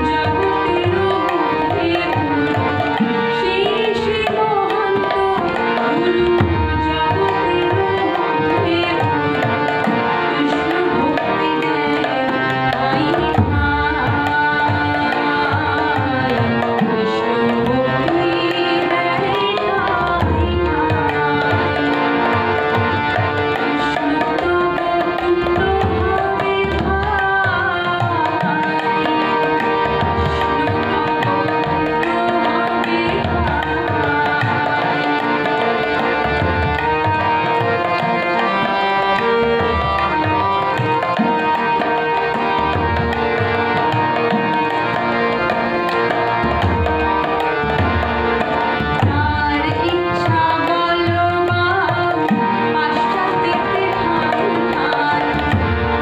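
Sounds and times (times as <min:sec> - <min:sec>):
woman singing devotional song: 0:00.0 - 0:56.0
hand drum rhythm: 0:15.3 - 0:38.6, 0:39.4 - 0:56.0.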